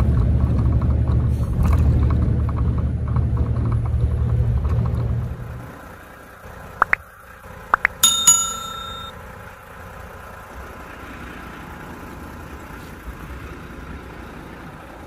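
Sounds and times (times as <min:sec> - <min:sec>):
notification bell ding: 0:08.0 - 0:09.1.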